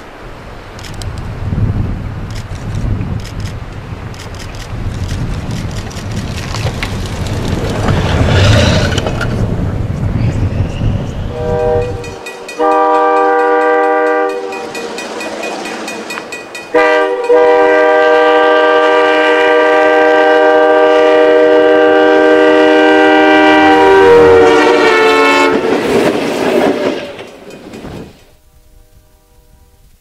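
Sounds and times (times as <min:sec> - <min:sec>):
rushing noise of passing train: 0:00.0 - 0:29.7
train horn blasts: 0:11.3 - 0:25.8, 0:28.4 - 0:30.0.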